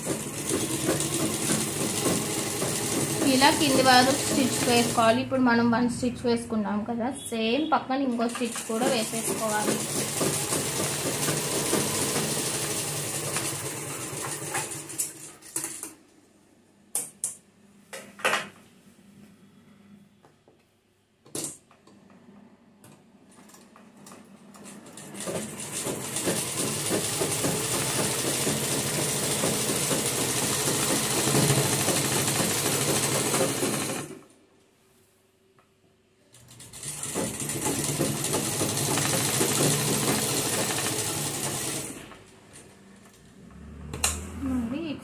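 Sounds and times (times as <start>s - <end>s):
sewing machine stitching: 0.0s - 5.1s, 8.2s - 15.8s, 24.6s - 34.2s, 36.4s - 42.2s.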